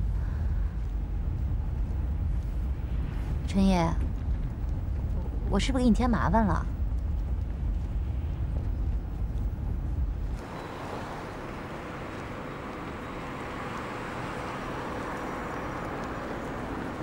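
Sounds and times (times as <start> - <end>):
car interior rumble: 0.0 - 17.0
street traffic noise: 7.4 - 17.0.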